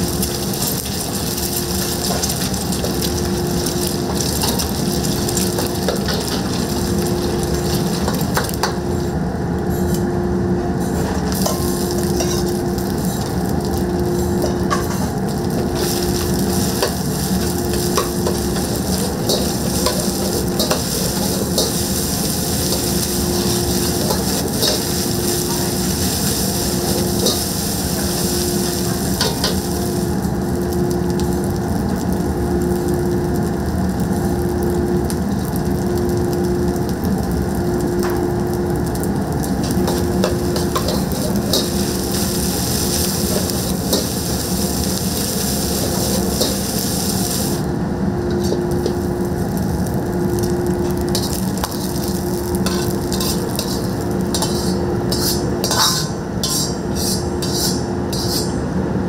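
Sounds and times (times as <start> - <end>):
rice sizzling in a wok: 0.0 - 59.0
metal ladle striking wok: 14.4 - 30.0, 39.6 - 44.8, 48.3 - 49.1, 50.7 - 58.6.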